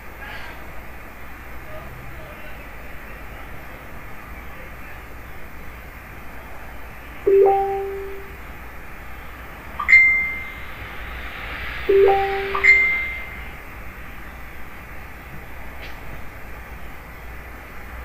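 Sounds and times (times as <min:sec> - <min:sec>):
ringing chime tones: 0:07.3 - 0:08.4, 0:09.8 - 0:10.6, 0:11.9 - 0:13.4.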